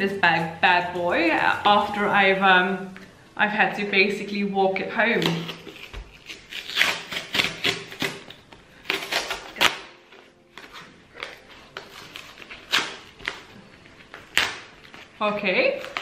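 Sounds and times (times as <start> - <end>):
cardboard ripping: 5.2 - 16.0.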